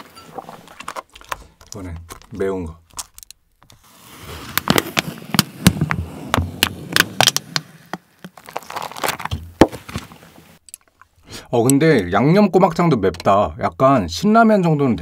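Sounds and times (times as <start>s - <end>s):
plastic film lid crackling: 4.4s - 11.1s.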